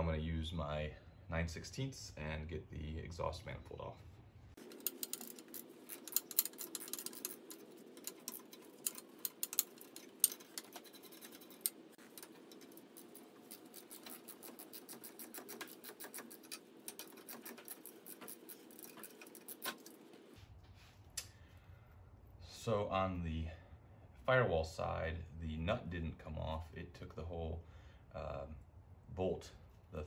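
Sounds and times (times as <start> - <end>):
faint steady hum: 0.0 - 30.0
socket ratchet clicking: 4.6 - 20.0.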